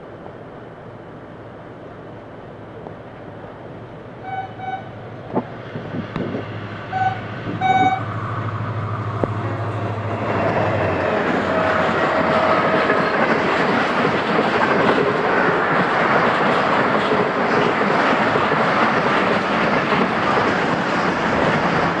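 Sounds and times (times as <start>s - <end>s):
locomotive engine drone: 0.0s - 16.2s
train noise: 0.0s - 22.0s
locomotive horn toots: 4.2s - 5.0s, 6.9s - 8.1s.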